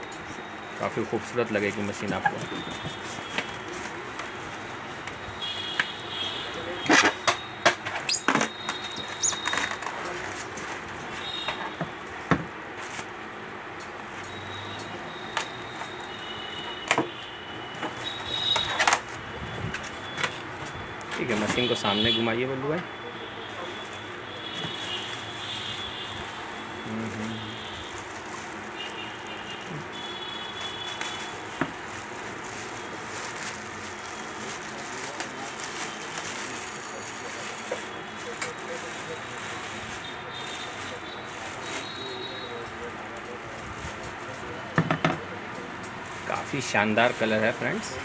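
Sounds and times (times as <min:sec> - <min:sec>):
plastic bag crinkling: 0:23.9 - 0:44.3.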